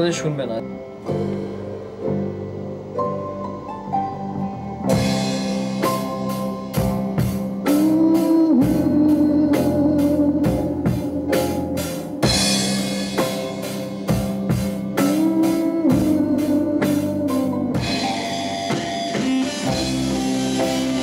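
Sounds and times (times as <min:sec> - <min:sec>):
distorted guitar: 0:00.0 - 0:21.0
drum kit beat with cymbals: 0:04.8 - 0:21.0.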